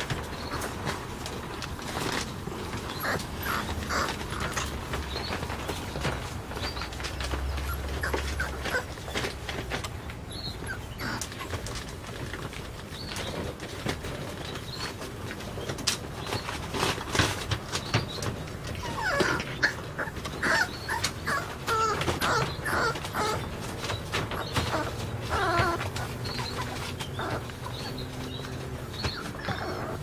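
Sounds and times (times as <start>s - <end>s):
puppy whimpering and yipping: 2.7s - 9.4s, 10.3s - 11.6s, 18.7s - 30.0s.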